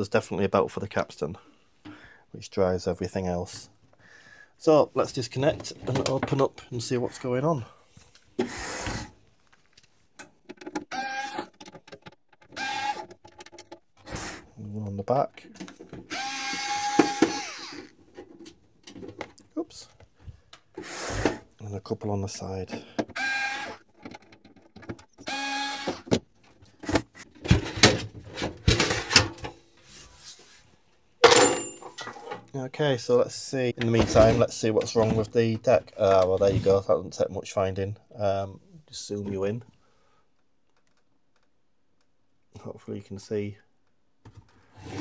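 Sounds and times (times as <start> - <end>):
knocks and clatters: 11.5 - 14.0
electric screwdriver whirring: 12.6 - 13.0, 16.1 - 17.9, 25.2 - 26.0.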